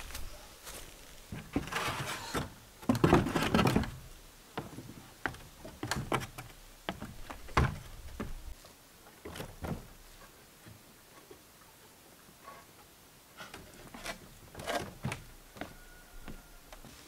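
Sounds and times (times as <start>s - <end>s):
wooden knocks and thuds: 2.4s - 4.0s, 4.6s - 8.5s, 9.3s - 10.0s.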